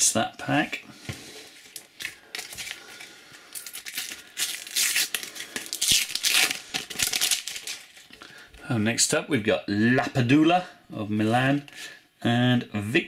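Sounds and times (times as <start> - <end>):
wrapper crinkling: 1.6 - 8.2
sticker packet tearing: 3.6 - 8.0.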